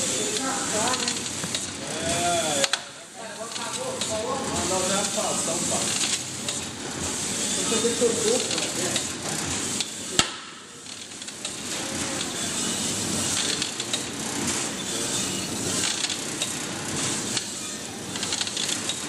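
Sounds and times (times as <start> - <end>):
mechanical clatter: 0.3 - 1.8, 2.6 - 19.0.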